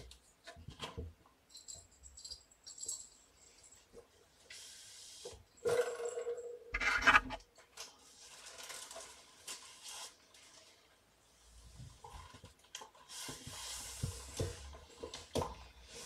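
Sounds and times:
paper rustling and crinkling: 7.7 - 10.8.

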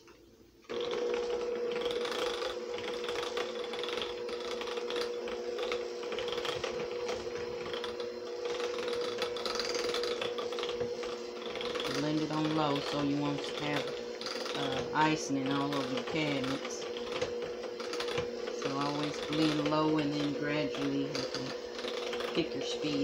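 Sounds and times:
electric hand mixer running: 0.6 - 23.0.

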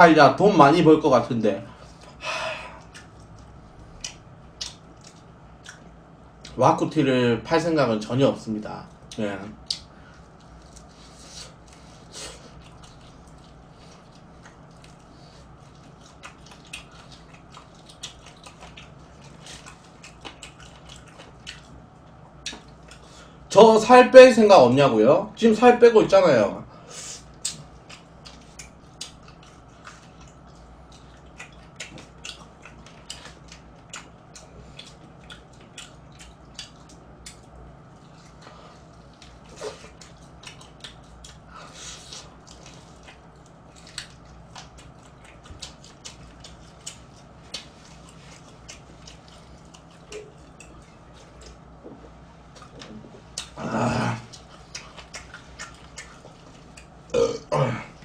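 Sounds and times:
low steady hum: 0.0 - 58.0
man chewing crunchy food: 1.7 - 6.6, 8.9 - 23.5, 27.2 - 58.0
man burping: 53.6 - 54.3, 57.1 - 58.0.

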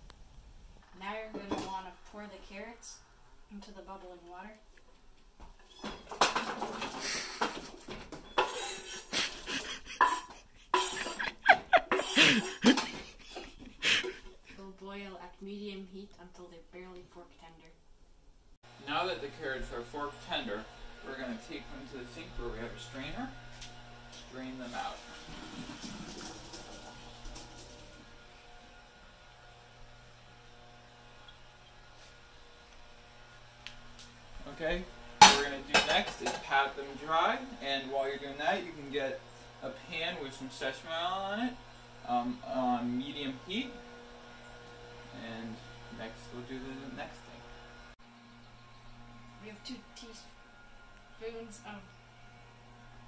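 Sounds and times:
faint electrical hum: 0.0 - 53.0
water boiling: 24.3 - 32.4.

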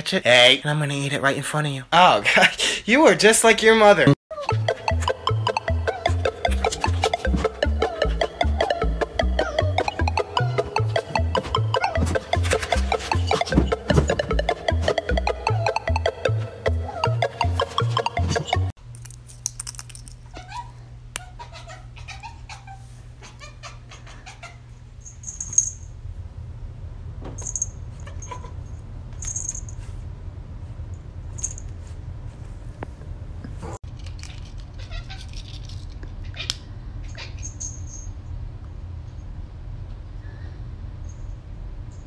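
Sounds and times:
low steady hum: 18.8 - 42.0.

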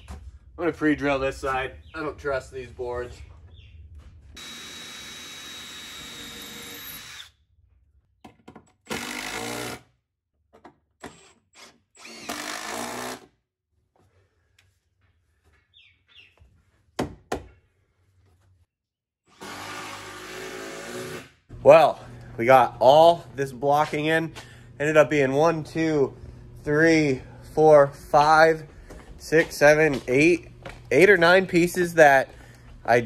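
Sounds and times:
cordless drill drilling into wood: 4.4 - 7.4, 8.9 - 9.8, 11.0 - 13.3, 19.3 - 21.4.

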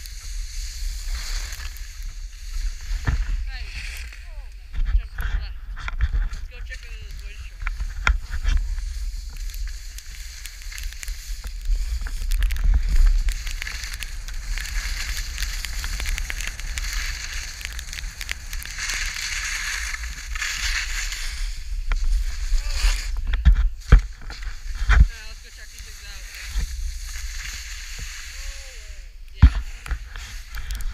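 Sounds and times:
skis sliding over snow: 0.0 - 30.9.

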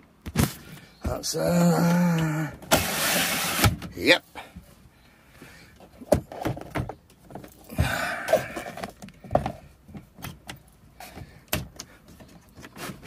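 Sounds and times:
curtain sliding along rail: 2.7 - 3.7.

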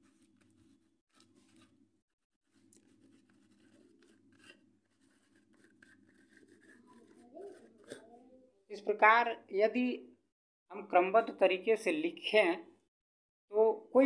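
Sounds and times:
chalk scratching on blackboard: 2.4 - 8.0.

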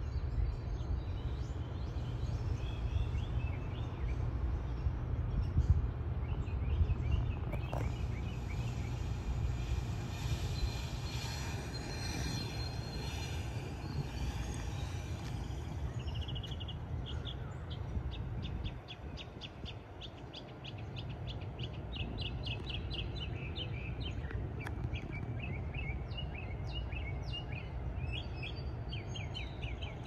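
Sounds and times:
train rumbling: 0.0 - 30.0
birds chirping: 6.2 - 30.0
faint high hiss: 7.7 - 16.5.

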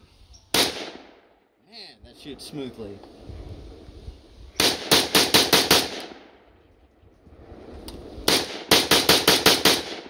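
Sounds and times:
rifle gunshots: 0.5 - 1.2, 4.6 - 6.4, 8.2 - 10.0.

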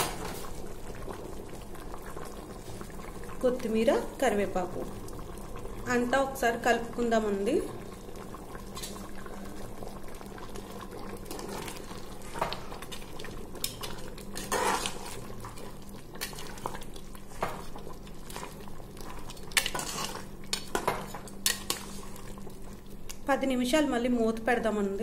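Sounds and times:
curry simmering: 0.0 - 23.4
spoon scraping metal pot: 14.4 - 15.2, 19.6 - 20.2.

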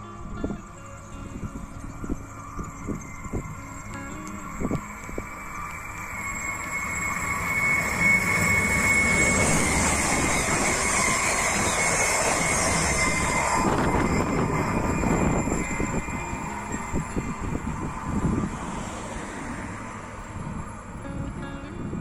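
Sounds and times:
diesel train passing: 0.0 - 22.0
high whine: 0.0 - 22.0
train wheels clattering: 2.6 - 18.1.

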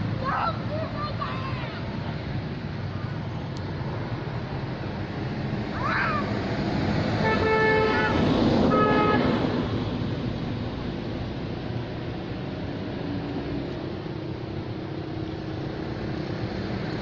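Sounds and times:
traffic rumble: 0.0 - 17.0
vehicle horn tooting: 7.2 - 9.3.

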